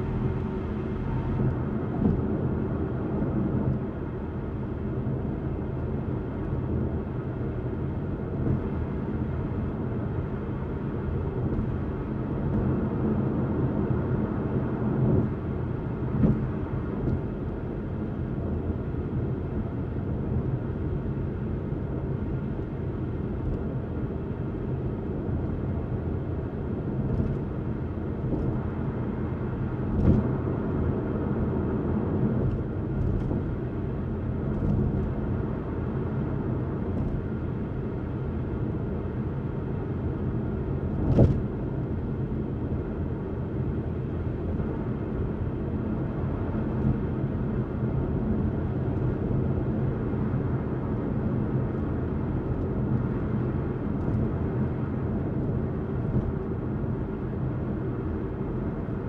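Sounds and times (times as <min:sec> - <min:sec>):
road and tyre rumble: 0:00.0 - 0:59.0
car thumps: 0:16.1 - 0:16.5, 0:29.9 - 0:30.3, 0:41.0 - 0:41.5.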